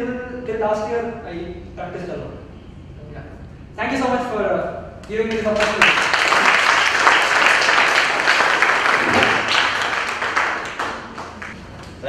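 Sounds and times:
audience applauding: 5.3s - 11.6s.

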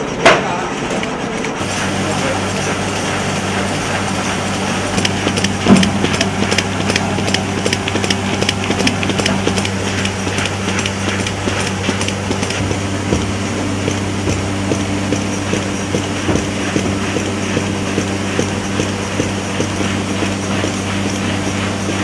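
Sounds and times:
low hum: 1.6s - 22.0s
stamps clacking on paper: 4.9s - 22.0s.

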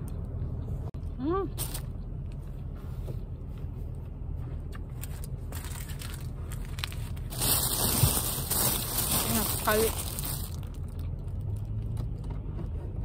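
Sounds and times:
low rumble inside car: 0.0s - 13.0s
plastic wrapper crinkling: 5.0s - 11.6s.

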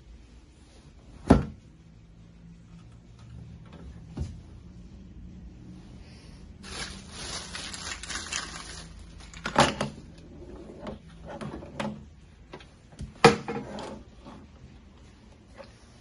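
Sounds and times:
plastic wrapping crinkling: 6.6s - 9.6s.

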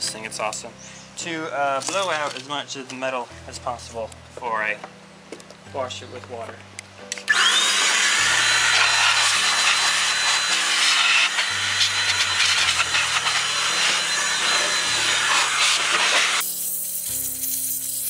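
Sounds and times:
electric duster blowing air: 7.3s - 18.0s.

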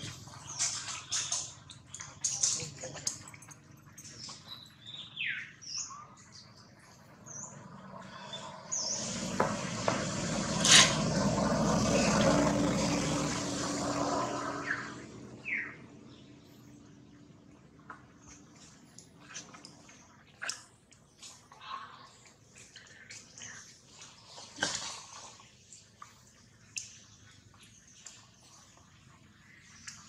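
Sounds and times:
birds chirping: 0.0s - 9.7s, 11.1s - 24.5s
motor vehicle passing: 7.0s - 16.8s.

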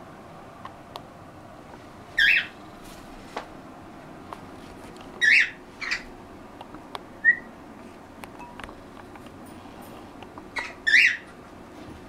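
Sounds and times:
parrots calling sharply: 2.2s - 2.6s, 5.2s - 6.1s, 10.6s - 11.3s.

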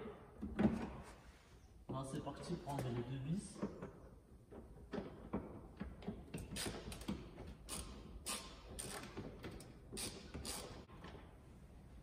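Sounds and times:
hand tool clicking and scraping: 6.0s - 10.9s.

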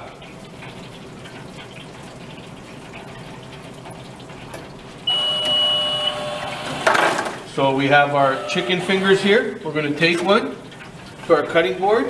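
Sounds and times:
steady machine hum: 0.0s - 12.0s
fryer hissing: 4.0s - 12.0s
high beep: 5.1s - 6.5s.

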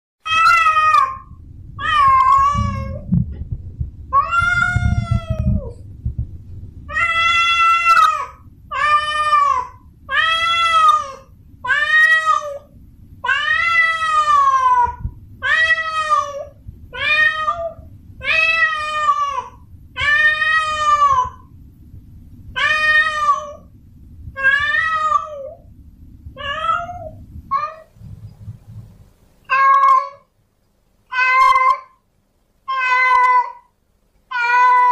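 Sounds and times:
cat yowling: 0.2s - 3.0s, 4.2s - 5.7s, 6.9s - 21.5s, 22.6s - 23.7s, 24.4s - 25.6s, 26.4s - 27.9s, 29.5s - 30.3s, 31.1s - 32.0s, 32.7s - 33.7s, 34.3s - 34.9s
low background rumble: 0.2s - 34.9s.

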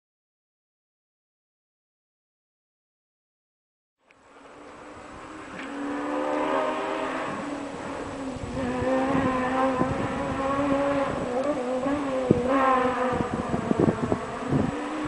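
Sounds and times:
engines buzzing drone: 4.1s - 15.0s.

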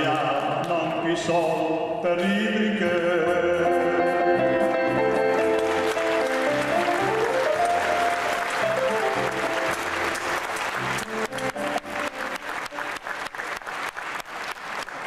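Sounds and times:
electronic keyboard playing: 3.9s - 13.0s
audience applause: 5.3s - 15.0s.

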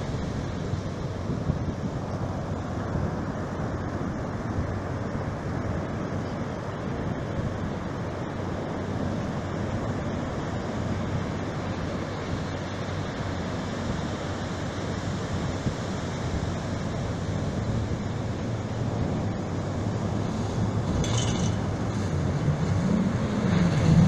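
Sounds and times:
ocean surf on sandy beach: 0.0s - 24.0s
wind noise on microphone: 0.0s - 24.0s.

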